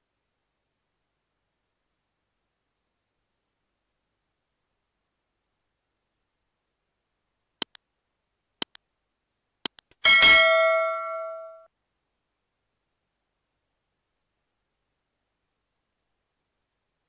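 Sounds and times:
quick double clicks: 9.7 - 10.0
bright bell-like ding: 10.0 - 11.7.

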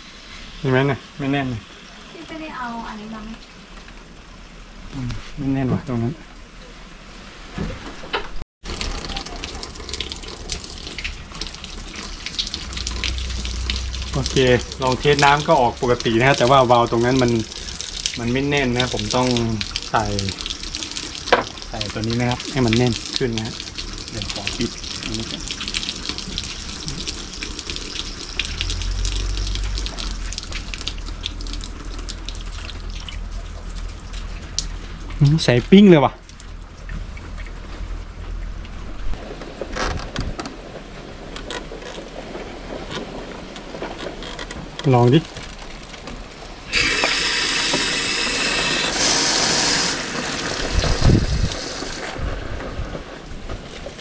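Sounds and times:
tap water splashing: 7.6 - 35.2, 45.3 - 52.2
low rumble: 8.7 - 20.4, 21.6 - 43.9.

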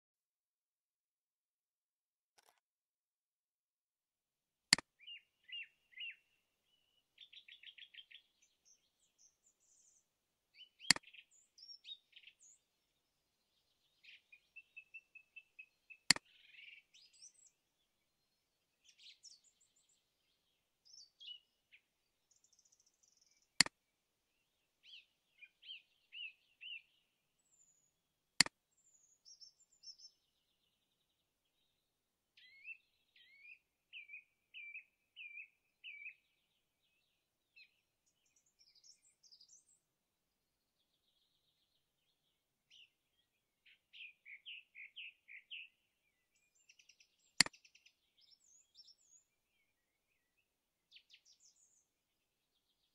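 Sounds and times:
sharp clicks: 2.4 - 2.6
birds chirping and singing: 5.0 - 10.0, 10.6 - 12.6, 13.5 - 17.6, 18.3 - 23.6, 24.4 - 27.9, 28.8 - 31.0, 32.4 - 39.8, 42.7 - 51.8.

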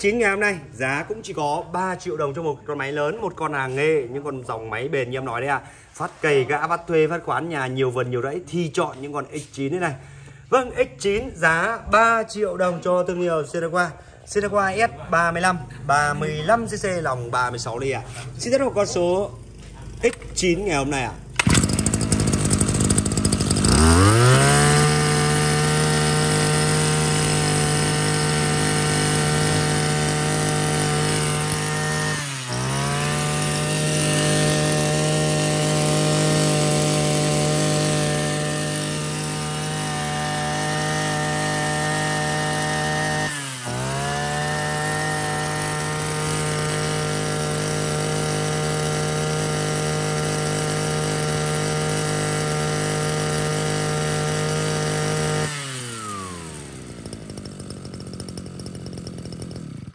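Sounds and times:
brush cutter engine revving: 14.3 - 59.9.

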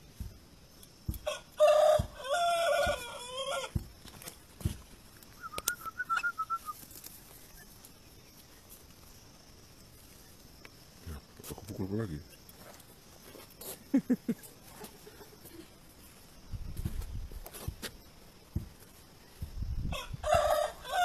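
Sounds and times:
rooster crowing: 1.1 - 3.8, 19.9 - 21.0.

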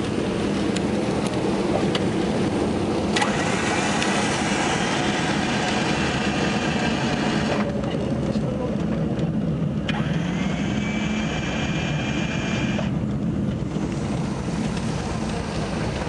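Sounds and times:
aircraft engines droning: 0.0 - 16.0.

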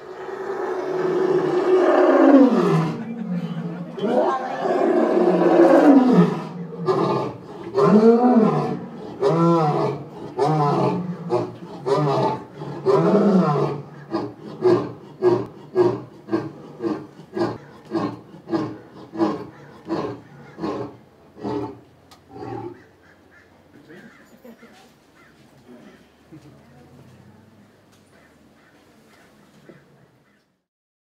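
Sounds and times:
lion roaring: 0.0 - 22.8.

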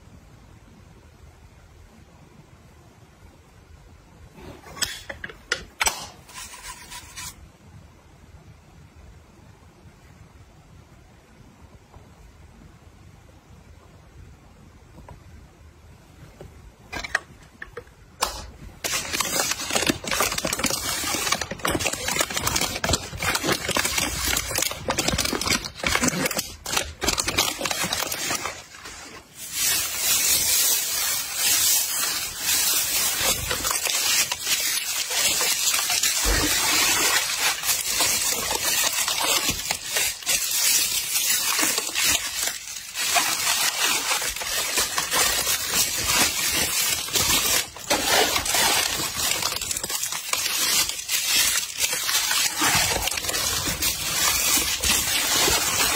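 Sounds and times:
packing material crinkling: 5.8 - 7.4, 16.9 - 55.9.

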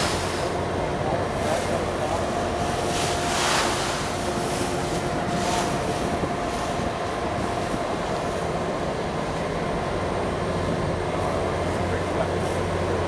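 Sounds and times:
ferry engine drone: 0.0 - 13.0
thin steady whine: 0.0 - 13.0
water rushing along hull: 0.0 - 13.0
wind on microphone: 2.2 - 9.8.

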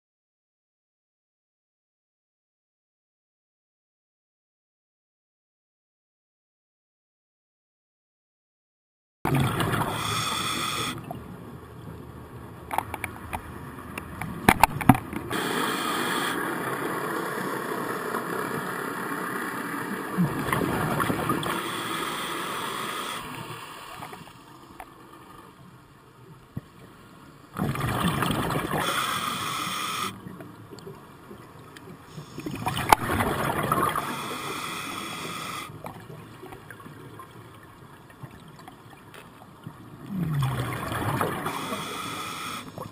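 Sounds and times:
regulator hissing inhalations: 9.8 - 11.0, 15.3 - 16.5, 21.4 - 24.5, 28.8 - 30.2, 32.1 - 32.6, 33.9 - 35.8, 41.4 - 42.9
bubbling exhalations: 40.1 - 41.5.

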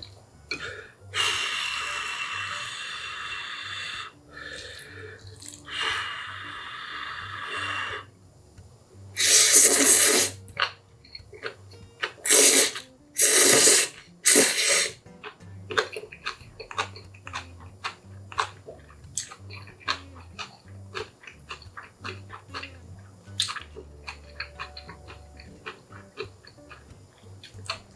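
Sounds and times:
person blowing on noodles: 0.4 - 8.1, 9.1 - 15.1
loud noodle slurps: 9.2 - 10.4, 12.2 - 15.0.

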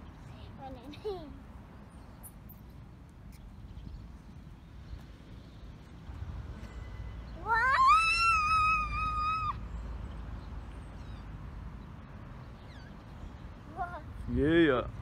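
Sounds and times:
girl's high-pitched squeal: 7.4 - 9.6.

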